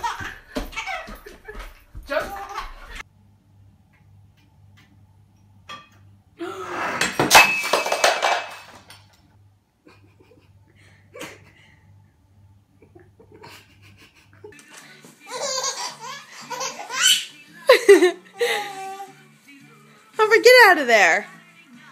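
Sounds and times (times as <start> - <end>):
ceramic bowl crashing and breaking: 7.0 - 9.1.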